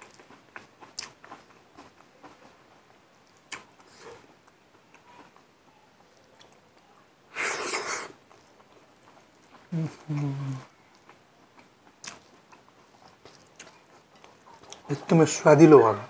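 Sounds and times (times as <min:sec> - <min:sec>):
fingers mixing food on plate: 0:00.0 - 0:15.8
breathy mouth and nose noise: 0:07.3 - 0:08.2.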